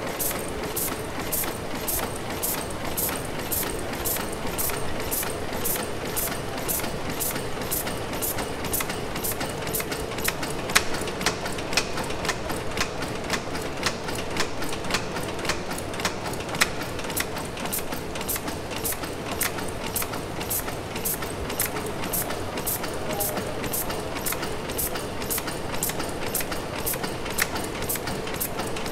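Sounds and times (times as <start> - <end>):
steam engine running: 0.0 - 10.4, 17.0 - 28.9.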